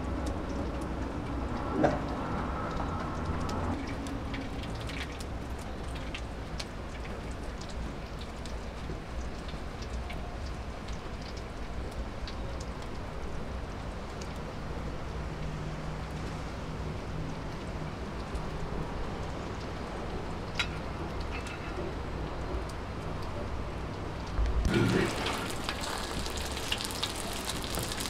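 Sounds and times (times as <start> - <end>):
wood fire crackling: 17.3 - 28.0.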